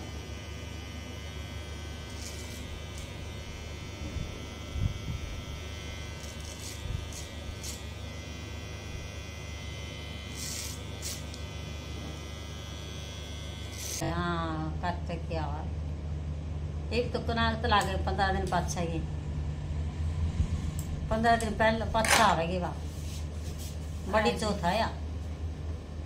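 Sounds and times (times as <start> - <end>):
electric hair clipper buzzing: 0.0 - 14.1
clipper blades scratching through hair: 2.0 - 3.3, 4.0 - 8.2, 10.3 - 11.6, 13.6 - 14.0, 20.8 - 22.4.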